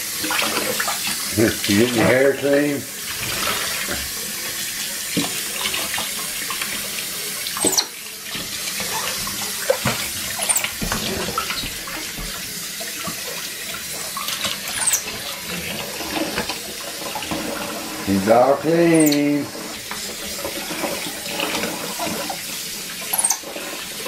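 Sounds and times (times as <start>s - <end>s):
faucet running into sink: 0.0s - 24.0s
monkey high squeaks: 14.8s - 15.0s.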